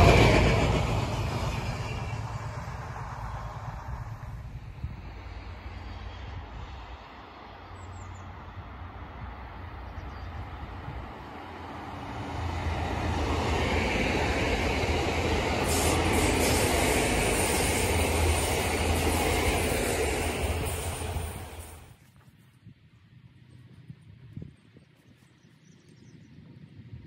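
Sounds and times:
diesel train passing: 0:00.0 - 0:22.0.

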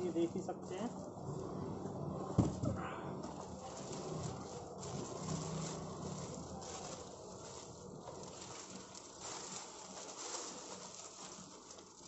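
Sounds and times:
bubble wrap crinkling: 0:03.2 - 0:12.0.

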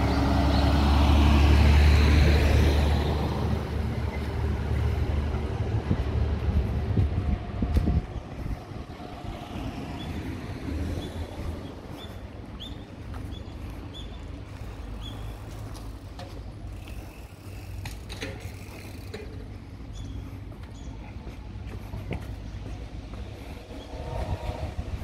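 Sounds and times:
low outdoor rumble: 0:00.0 - 0:25.0.

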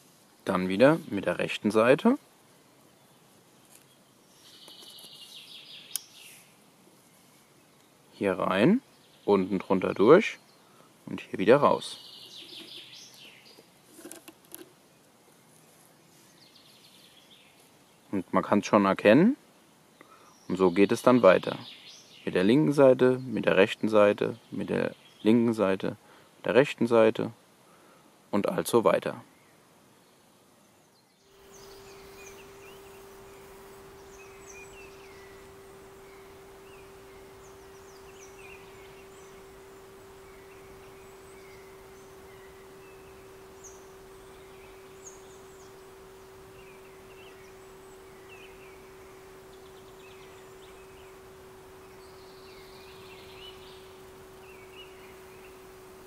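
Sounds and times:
small birds chirping: 0:00.0 - 0:28.0, 0:29.1 - 0:56.0
steady hum-like tone: 0:31.2 - 0:56.0.

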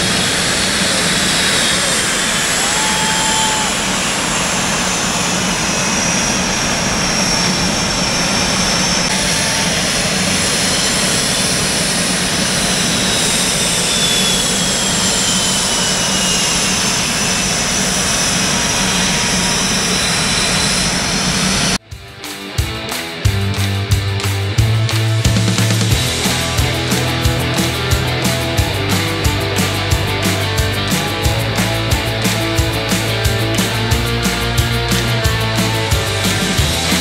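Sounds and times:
high whines sliding down in pitch: 0:00.0 - 0:21.8
jet engines roaring: 0:00.0 - 0:21.8, 0:24.3 - 0:37.0.

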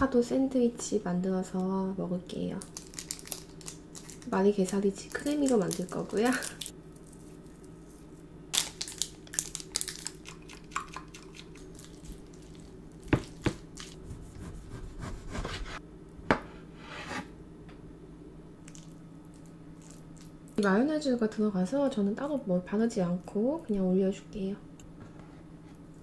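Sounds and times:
steady low hum: 0:00.0 - 0:26.0
food squished in ceramic bowl: 0:08.5 - 0:14.0
knife on cutting board: 0:13.4 - 0:17.3.

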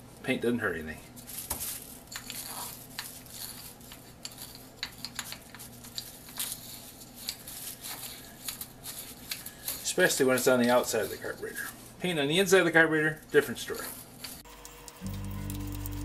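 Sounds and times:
brush clinking against metal: 0:01.2 - 0:11.8
low steady hum: 0:14.0 - 0:16.0.

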